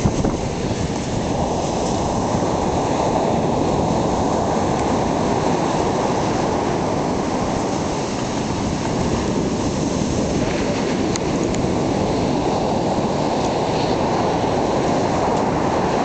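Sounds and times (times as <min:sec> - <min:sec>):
ocean surf on beach: 0:00.0 - 0:16.0
wind rumbling on microphone: 0:00.0 - 0:16.0.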